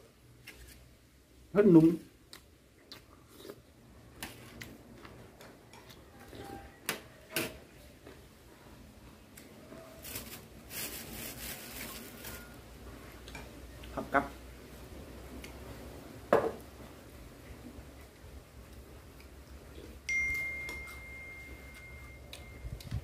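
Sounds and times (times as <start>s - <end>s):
person chewing: 2.2s - 6.7s, 17.9s - 23.0s
dry rustle of leafy greens: 9.8s - 12.8s.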